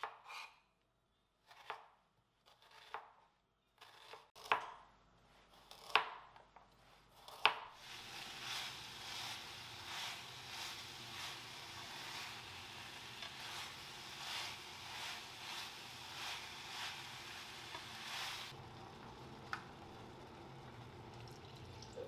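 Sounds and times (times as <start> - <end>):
knife chopping on wooden board: 5.7 - 6.3
food sizzling in a pan: 7.8 - 22.0.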